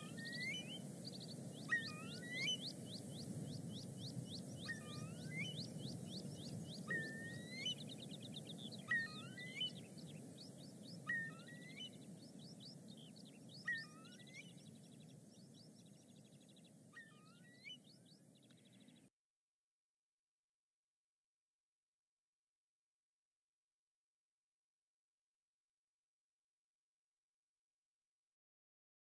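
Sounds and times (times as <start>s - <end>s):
songbird whistling and trilling: 0.0s - 18.9s.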